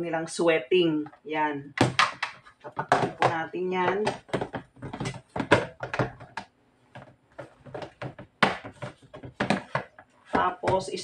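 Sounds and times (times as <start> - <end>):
plastic lid clicking and snapping: 1.8 - 3.2.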